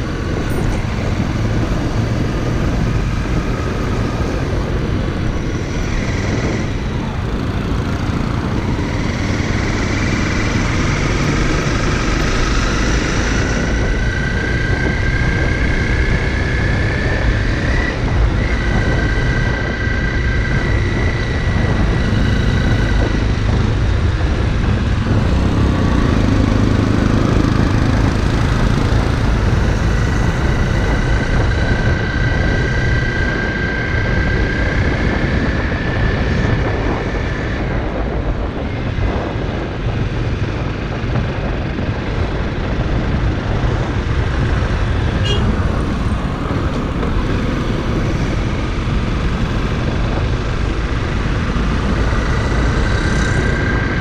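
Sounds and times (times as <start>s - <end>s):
motorcycle engine running: 0.0s - 54.0s
road and wind noise: 0.0s - 54.0s.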